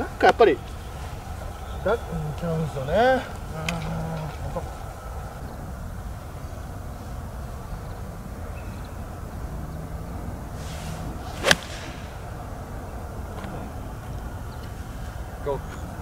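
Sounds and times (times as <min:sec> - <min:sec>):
golf club swish: 0:10.6 - 0:12.6
golf club striking ball: 0:11.0 - 0:12.6.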